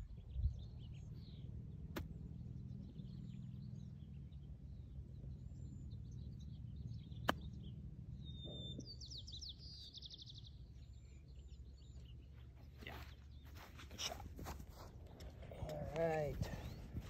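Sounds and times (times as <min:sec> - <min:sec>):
birds chirping: 0:00.0 - 0:17.0
low outdoor rumble: 0:00.0 - 0:17.0
golf club striking ball: 0:07.2 - 0:07.6.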